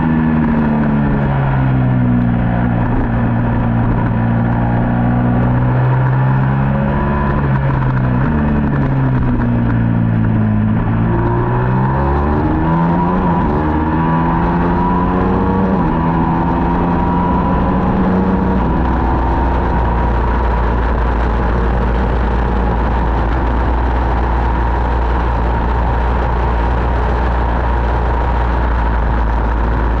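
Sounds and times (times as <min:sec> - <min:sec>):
motorcycle engine revving: 0:00.0 - 0:30.0.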